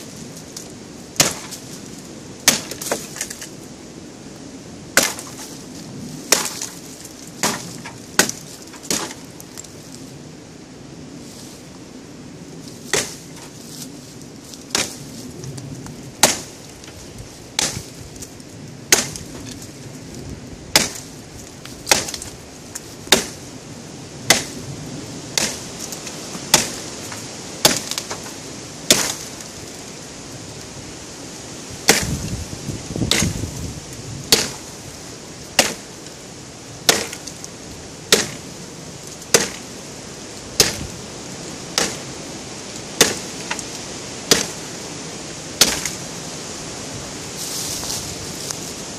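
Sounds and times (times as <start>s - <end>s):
knife chopping wood: 1.2s - 1.6s, 2.4s - 3.4s, 5.0s - 5.5s, 6.3s - 6.8s, 7.4s - 9.2s, 12.9s - 13.5s, 14.7s - 15.0s, 16.2s - 16.5s, 17.6s - 17.9s, 18.9s - 19.5s, 20.7s - 21.1s, 21.8s - 22.3s, 23.1s - 23.4s, 24.3s - 24.6s, 25.4s - 25.7s, 26.4s - 28.3s, 28.9s - 29.3s, 31.8s - 32.2s, 33.0s - 33.4s, 34.3s - 34.6s, 35.5s - 35.9s, 36.8s - 37.3s, 38.1s - 38.4s, 39.3s - 39.6s, 40.6s - 40.9s, 41.8s - 42.0s, 43.0s - 43.6s, 44.3s - 44.6s, 45.6s - 46.0s
rustling: 12.6s - 23.4s, 47.2s - 48.9s.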